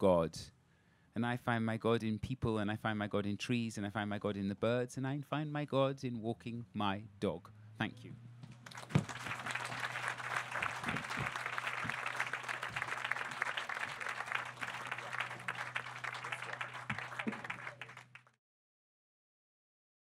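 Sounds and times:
audience applauding: 0:08.6 - 0:18.4
low steady hum: 0:09.1 - 0:18.2.

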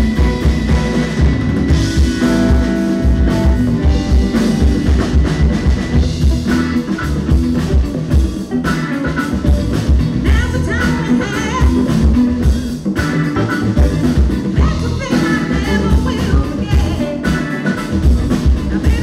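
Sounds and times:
bass guitar: 0:00.0 - 0:19.0
drum kit beat: 0:00.0 - 0:19.0
electric guitar: 0:00.0 - 0:19.0
woman singing lead vocals: 0:10.2 - 0:12.0, 0:14.6 - 0:17.2, 0:18.8 - 0:19.0.

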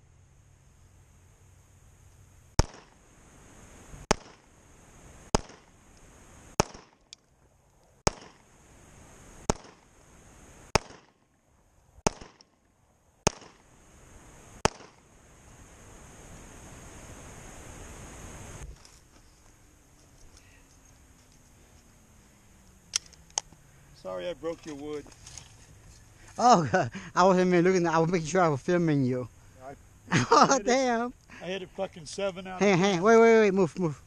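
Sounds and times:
pistol shots: 0:02.6 - 0:03.0, 0:04.1 - 0:04.4, 0:05.3 - 0:05.7, 0:06.6 - 0:07.1, 0:08.0 - 0:08.4, 0:09.5 - 0:09.9, 0:10.7 - 0:11.2, 0:12.0 - 0:12.5, 0:13.2 - 0:13.6, 0:14.6 - 0:15.0.

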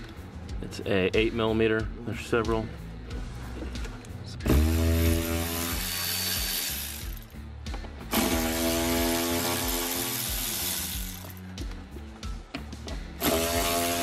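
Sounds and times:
cordless ratchet motor whine: 0:04.5 - 0:07.3, 0:08.1 - 0:11.4, 0:13.2 - 0:14.0.

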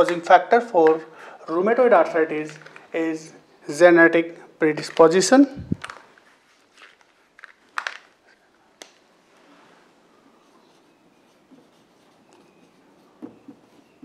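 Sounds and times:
marker clicks and taps: 0:00.0 - 0:01.0, 0:13.2 - 0:13.8
marker writing on whiteboard: 0:10.4 - 0:14.0.

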